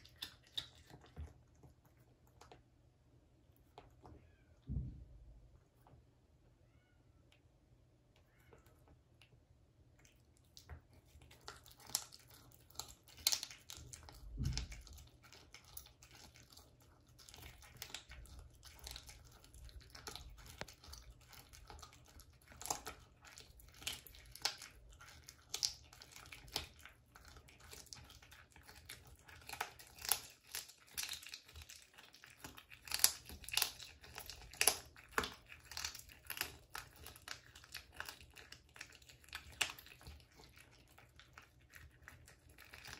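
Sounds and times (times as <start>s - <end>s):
cat crunching food: 0.0s - 4.2s, 8.7s - 42.9s
dull low thump: 4.7s - 5.3s.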